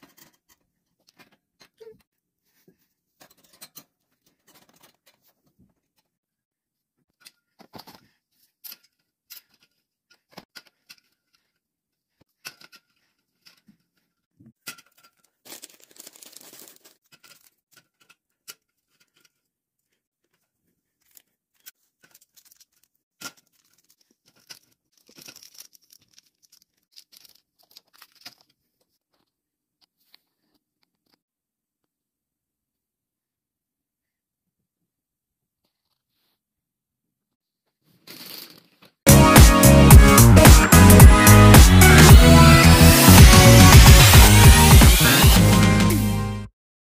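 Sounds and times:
snack bags rustling: 14.9 - 17.8, 20.9 - 29.4, 37.9 - 39.0.

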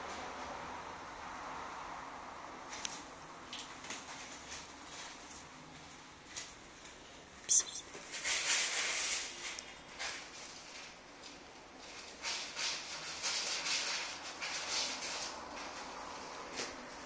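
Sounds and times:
kitten hissing: 7.4 - 7.9.

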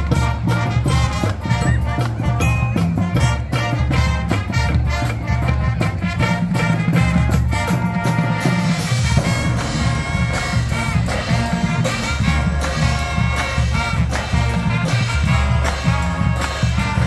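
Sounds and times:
marimbas and vibraphones: 0.0 - 4.1
drums: 0.0 - 17.0
horns: 0.0 - 17.0
marching band playing: 0.0 - 17.0.

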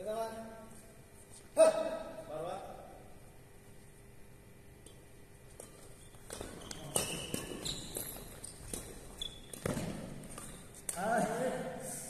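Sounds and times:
footfalls on court floor: 5.4 - 11.1
shoe squeaks: 5.6 - 10.9.

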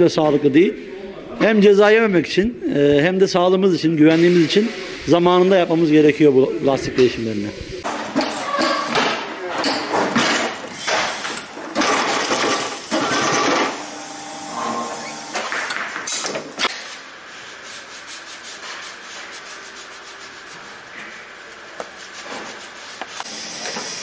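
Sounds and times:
machine hum: 10.6 - 16.6
harsh rubbing rasping noise: 17.3 - 23.3.

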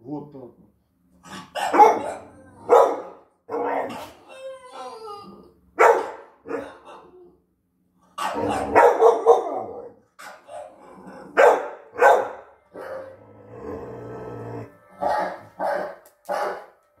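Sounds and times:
dog barking: 1.4 - 4.1, 5.8 - 7.1, 8.2 - 10.8, 11.4 - 13.1, 15.0 - 16.8.

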